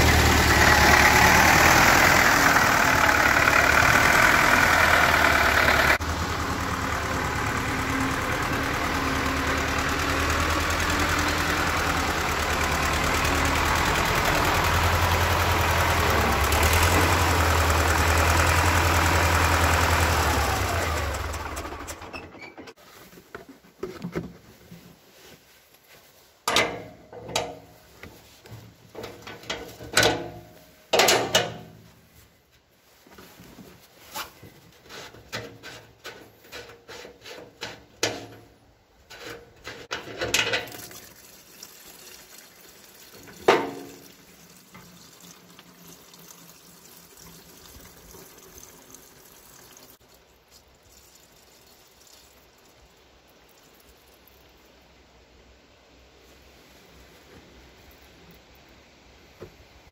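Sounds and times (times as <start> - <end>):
fuel trickling into container: 0.0 - 22.9, 39.1 - 55.0
plastic container and metal clunks: 43.3 - 44.0.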